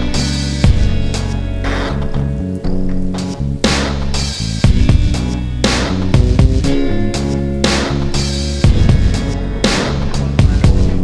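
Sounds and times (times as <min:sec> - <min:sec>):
background music with beat: 0:00.0 - 0:11.0
crash-like hit: 0:08.6 - 0:10.6.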